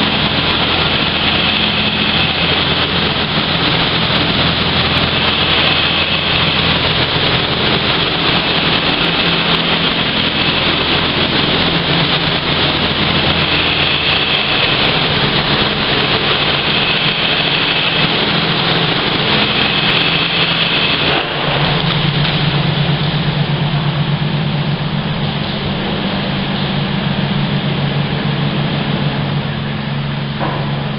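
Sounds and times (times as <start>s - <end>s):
high-pressure water spray hiss: 0.0s - 24.0s
wash machinery hum: 0.0s - 30.9s.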